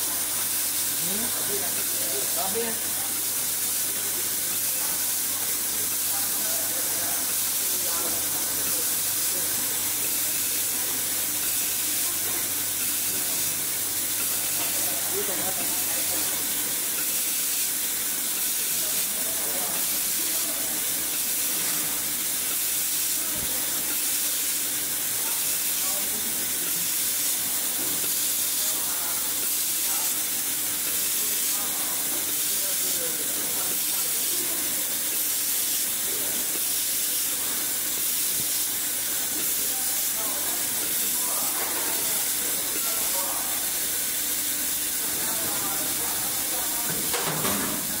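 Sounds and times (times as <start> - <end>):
laser welder high hiss: 0.0 - 48.0.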